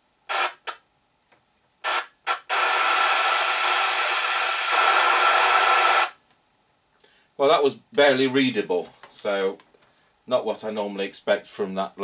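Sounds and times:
loud radio hiss: 0:00.3 - 0:00.8, 0:01.8 - 0:06.2
radio static crackles: 0:00.3 - 0:00.8, 0:01.8 - 0:06.2.

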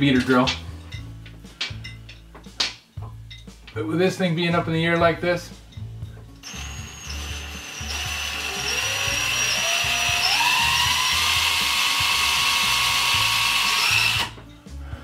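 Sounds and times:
cordless drill boring into wood: 0:06.4 - 0:14.4.

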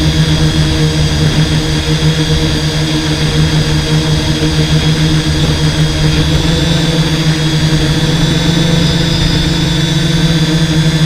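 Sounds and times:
hexacopter motors humming: 0:00.0 - 0:11.0.

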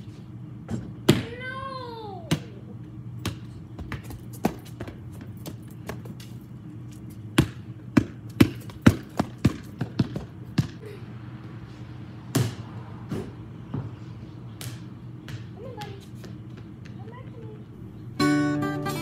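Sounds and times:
basketball bouncing on concrete: 0:02.3 - 0:02.6, 0:03.2 - 0:06.4, 0:07.2 - 0:10.8, 0:12.3 - 0:14.0, 0:14.6 - 0:17.7.

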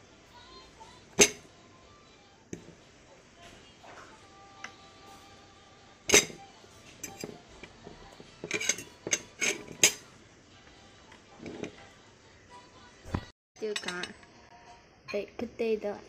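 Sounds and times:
fork scraping a plate: 0:06.1 - 0:10.1, 0:11.3 - 0:11.9.

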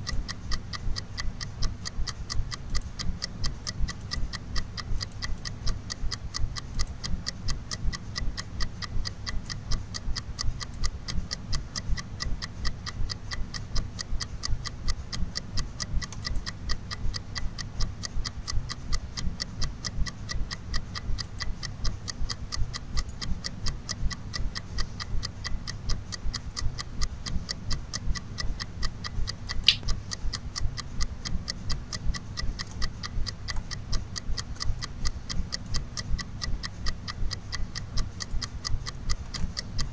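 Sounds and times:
steady ticking: 0:00.0 - 0:39.9.

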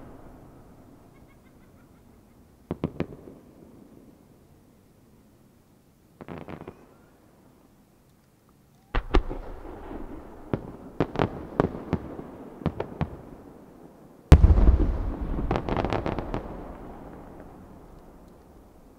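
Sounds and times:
firework crackling: 0:14.3 - 0:18.9.

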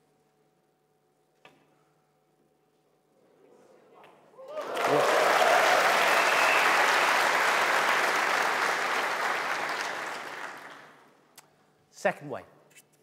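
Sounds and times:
audience applauding: 0:04.4 - 0:11.1.

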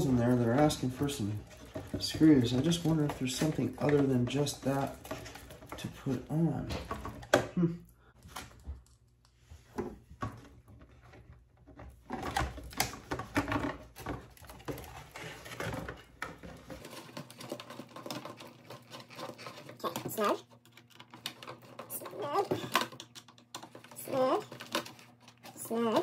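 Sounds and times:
small parts clicking and tapping: 0:16.8 - 0:25.6.

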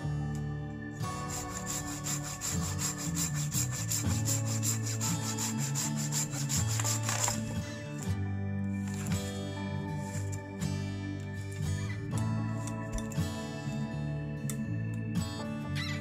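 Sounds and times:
hand saw cutting wood: 0:01.2 - 0:07.5.

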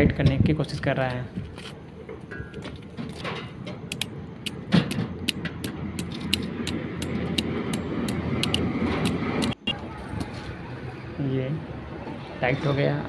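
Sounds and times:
sharp metal clicks of tool: 0:03.9 - 0:09.6.

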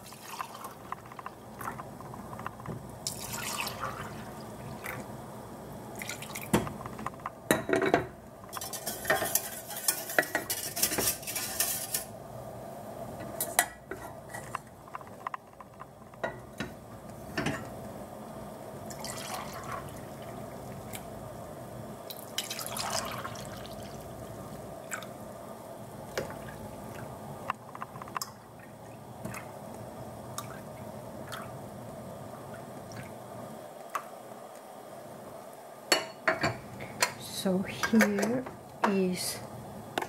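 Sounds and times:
faint steady hum: 0:00.0 - 0:40.0
liquid dribbling and dripping: 0:30.4 - 0:31.5.

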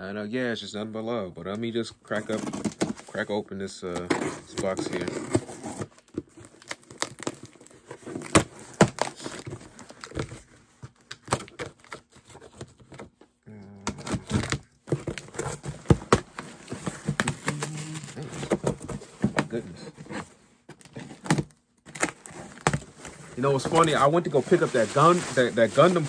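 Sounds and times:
packing material rustling: 0:03.9 - 0:12.6, 0:13.8 - 0:26.0
tape tearing: 0:04.0 - 0:10.3, 0:13.8 - 0:19.0, 0:20.8 - 0:26.0
cardboard box being opened: 0:04.0 - 0:10.5, 0:13.8 - 0:26.0.

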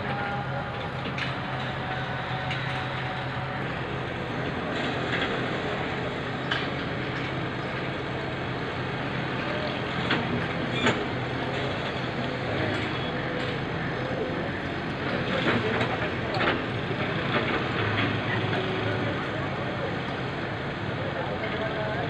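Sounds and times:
excavator diesel engine running: 0:00.0 - 0:22.0.

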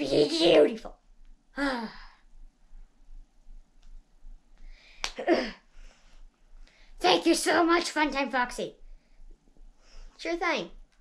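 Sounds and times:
child's wordless vocal sounds: 0:00.0 - 0:00.9
breath: 0:04.6 - 0:05.0, 0:05.6 - 0:07.0, 0:08.9 - 0:10.2.

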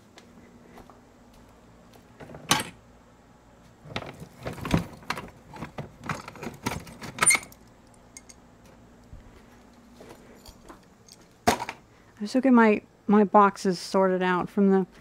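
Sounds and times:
electrical parts rattling in plastic bin: 0:03.8 - 0:07.6.

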